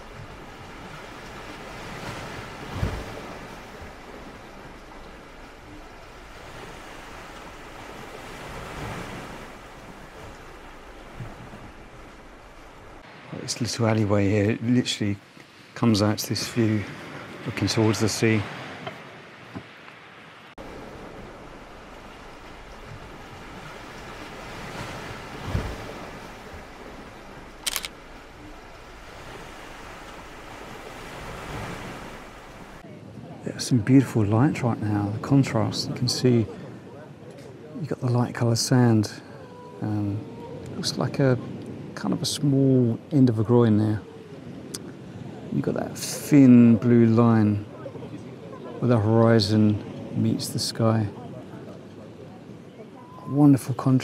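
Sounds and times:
sea waves washing onto beach: 0.0 - 54.0
wind: 0.0 - 54.0
wind thump on microphone: 0.1 - 4.8, 22.8 - 27.7
camera shutter double click: 27.6 - 28.0.

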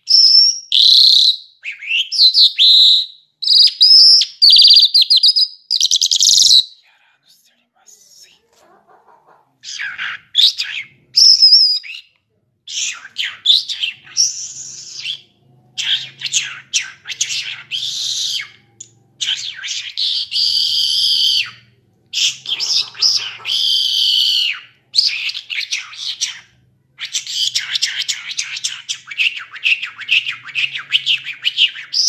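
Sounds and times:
lark singing with trills: 11.2 - 12.1.

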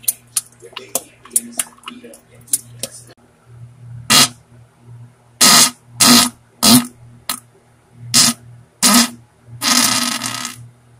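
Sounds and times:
fart sounds: 4.1 - 4.4, 5.4 - 7.0, 8.1 - 10.7.

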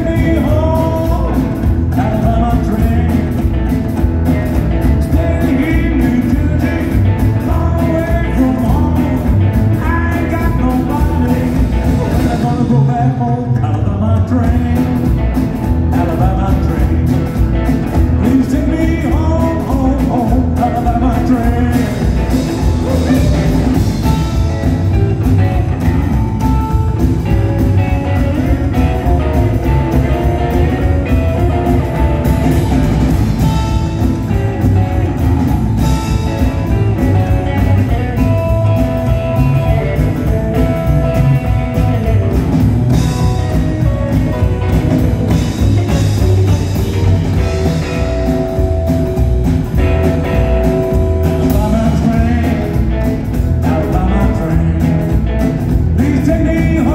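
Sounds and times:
man singing: 0.0 - 3.7, 4.8 - 24.8, 50.2 - 56.9
drum kit: 0.0 - 56.9
electric guitar: 0.0 - 56.9
upright double bass: 0.0 - 56.9.

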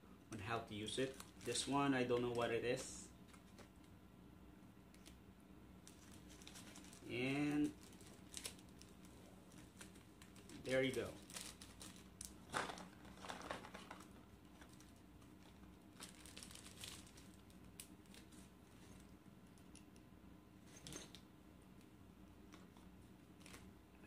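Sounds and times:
plastic parts rustling and clicking: 9.5 - 19.8.

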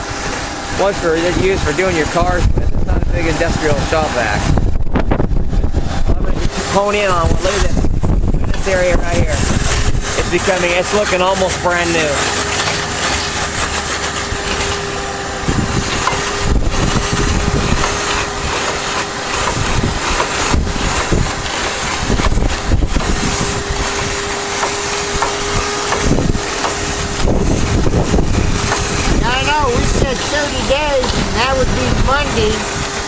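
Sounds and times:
rushing suction of water: 0.0 - 33.0
vacuum motor whine: 0.0 - 33.0.

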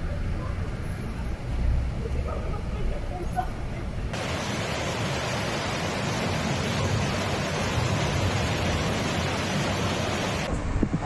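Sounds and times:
floodwater rushing: 1.7 - 10.5.

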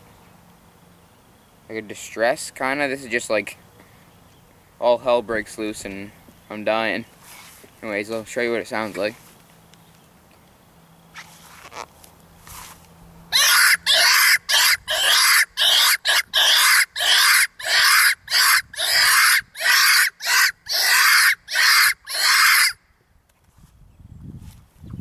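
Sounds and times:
predator call screeches: 13.3 - 22.8.

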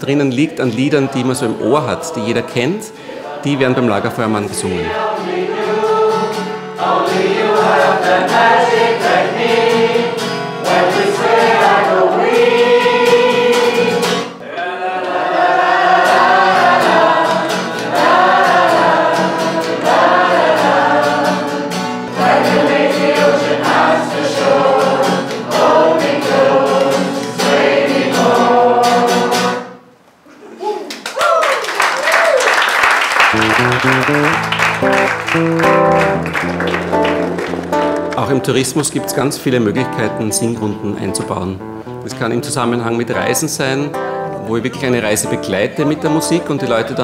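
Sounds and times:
acoustic guitar: 0.0 - 14.4, 15.1 - 30.0, 33.3 - 47.0
group singing: 0.3 - 29.9.

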